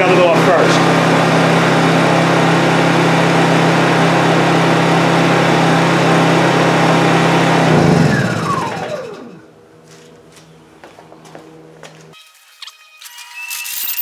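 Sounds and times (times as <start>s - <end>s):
engine winding down whine: 0.0s - 9.7s
generator engine running: 0.0s - 12.2s.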